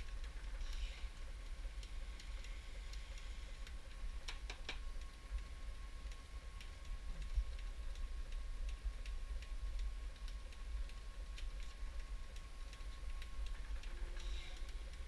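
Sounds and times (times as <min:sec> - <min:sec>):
light ticking: 0:00.0 - 0:15.0
machine hum with high tone: 0:00.0 - 0:15.0.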